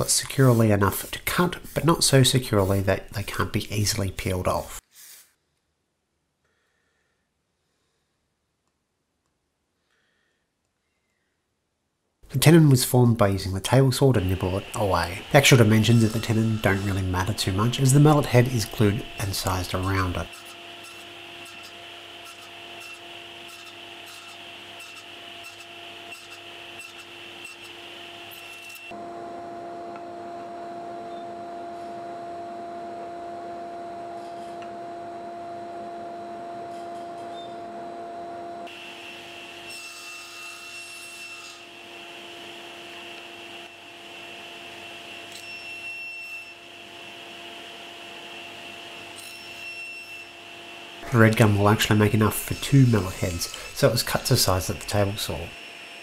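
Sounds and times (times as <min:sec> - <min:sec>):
saw blade rasping wood: 0:00.0 - 0:05.3, 0:14.1 - 0:29.0, 0:51.0 - 0:55.4
table saw motor whine: 0:13.7 - 0:56.0.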